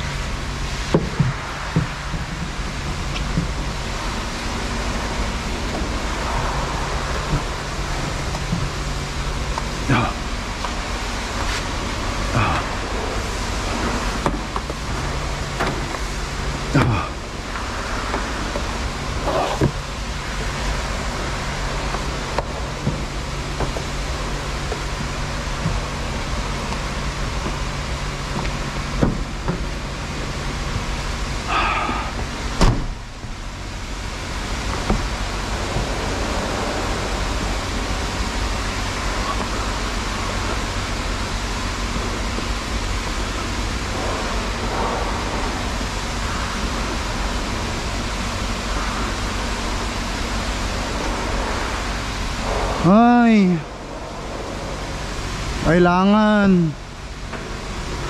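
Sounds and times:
engine idling: 0.0 - 58.0
steady hiss: 0.0 - 58.0.

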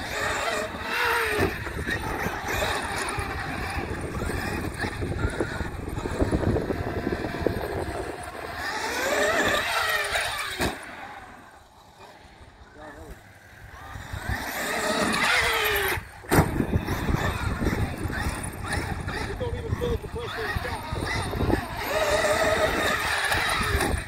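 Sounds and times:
electric motor whining: 0.0 - 24.0
sharp thud of landing: 16.3 - 16.7.

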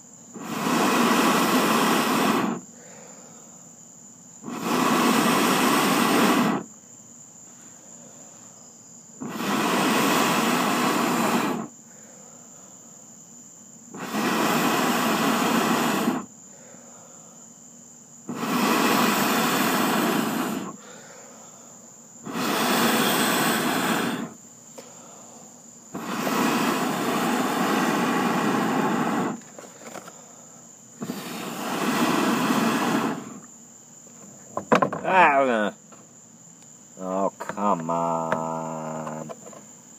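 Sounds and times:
person blowing on charcoal: 0.0 - 3.5, 4.3 - 6.8, 9.2 - 12.1, 13.9 - 17.3, 18.2 - 21.6, 22.2 - 25.3, 25.9 - 30.1, 30.9 - 33.6
crickets chirping: 0.0 - 39.9.

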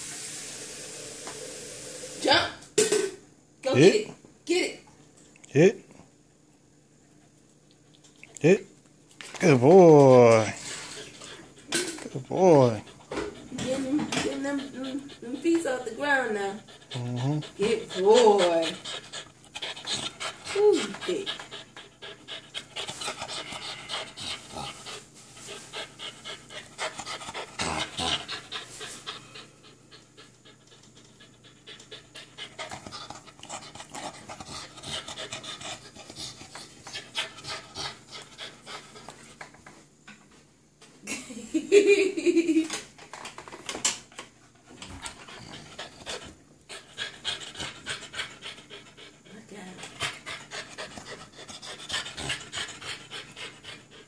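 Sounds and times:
puppy vocal sound: 10.4 - 25.0
puppy panting: 10.4 - 39.6, 44.6 - 54.0.

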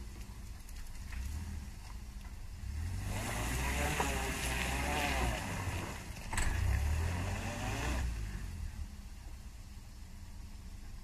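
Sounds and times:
pickup engine revving under load: 2.5 - 8.9.

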